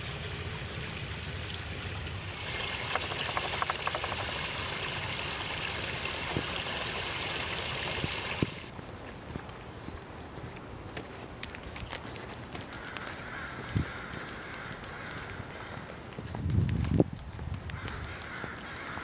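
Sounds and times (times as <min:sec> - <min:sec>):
water splashing over a log: 0:00.0 - 0:08.7.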